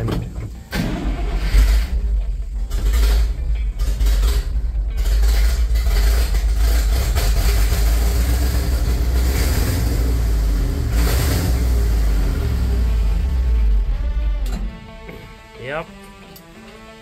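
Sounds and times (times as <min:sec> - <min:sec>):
truck engine running: 0:00.0 - 0:16.9.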